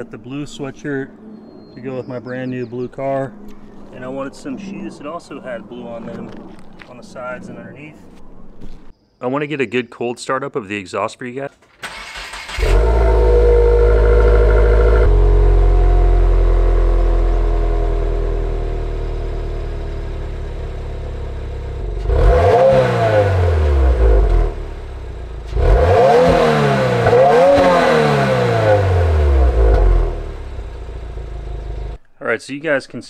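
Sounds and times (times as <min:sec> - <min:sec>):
engine throttle blips: 0:11.9 - 0:32.0
car engine idling: 0:12.5 - 0:22.5, 0:23.3 - 0:32.0.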